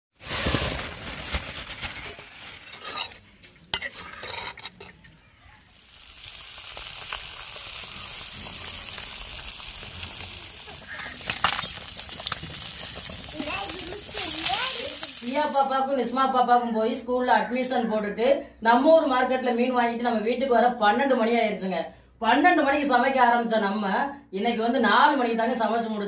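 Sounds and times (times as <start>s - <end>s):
fish sizzling in oil: 5.7s - 15.8s.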